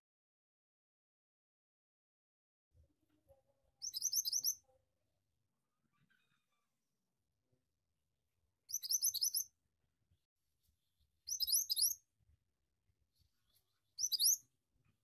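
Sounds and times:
bird chirping rapidly: 3.8 - 4.6, 8.7 - 9.5, 11.3 - 12.0, 14.0 - 14.4.

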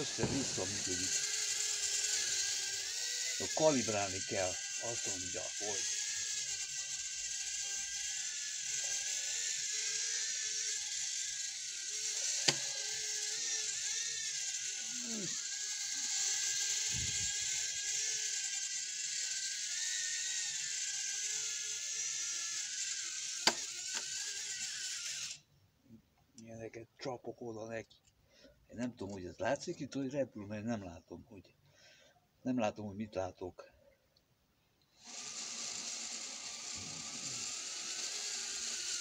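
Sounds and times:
sharp clicks: 0.0 - 0.8
toy drone propellers whirring: 0.0 - 25.5, 34.9 - 39.0.

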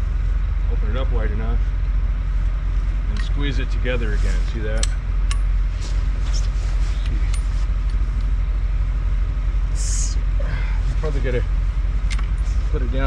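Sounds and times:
engine idling: 0.0 - 13.0
light metal clicks: 4.8 - 5.5.

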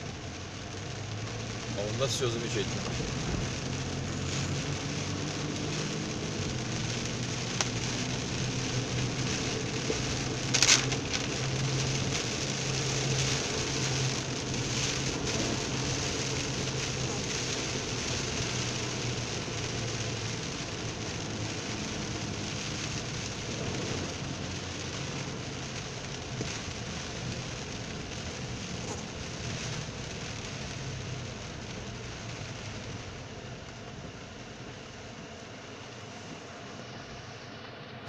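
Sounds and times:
car engine hum: 0.0 - 38.0
rain on car roof: 0.0 - 38.0
rush of noise: 1.1 - 18.4.

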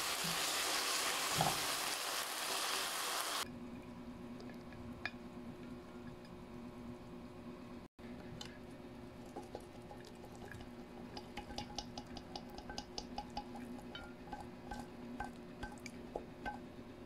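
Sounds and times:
utensil clinking on ceramic dishes: 10.5 - 16.6.

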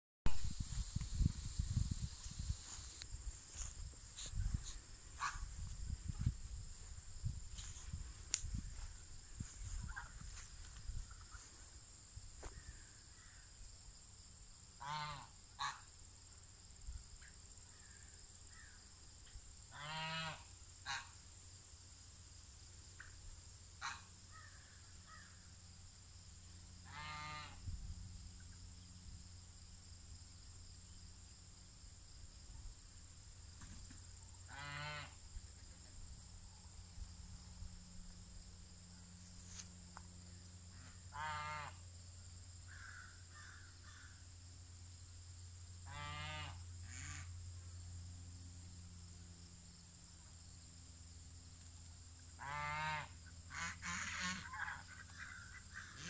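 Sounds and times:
high-pitched insect drone: 0.3 - 13.7.

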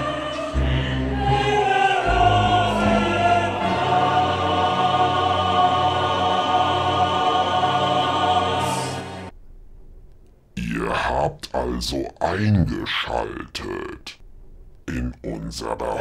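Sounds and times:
choir-like voices holding notes: 0.0 - 9.3.

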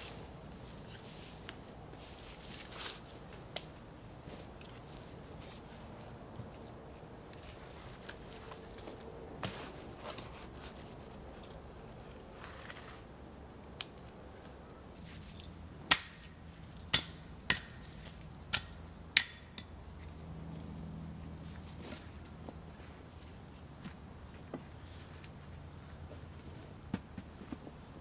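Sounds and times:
hatchet striking wood: 15.9 - 16.3, 16.9 - 17.8, 18.5 - 19.7.

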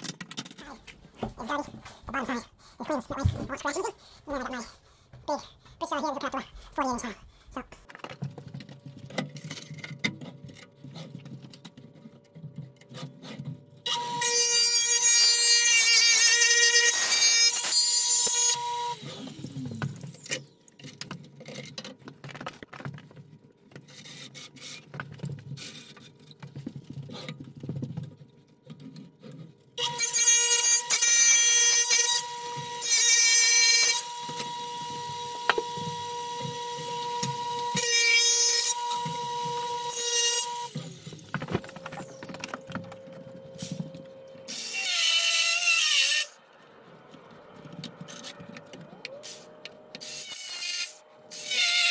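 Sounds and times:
blade cutting through tile: 12.9 - 20.5, 29.8 - 42.4, 50.0 - 51.9
tile saw motor whining: 29.8 - 46.4.

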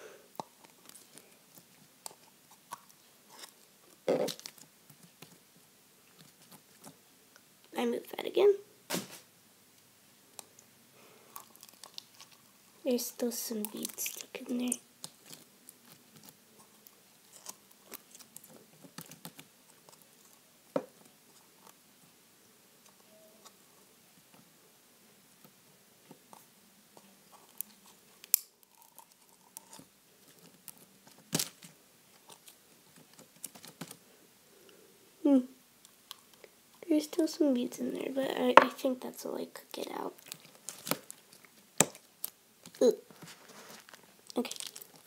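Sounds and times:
sticky slime clicks and crackles: 44.3 - 45.0.

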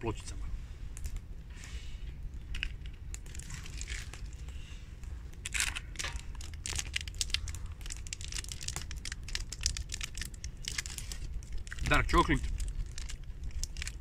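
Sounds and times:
wrapper crinkling: 2.6 - 4.6, 5.3 - 14.0.

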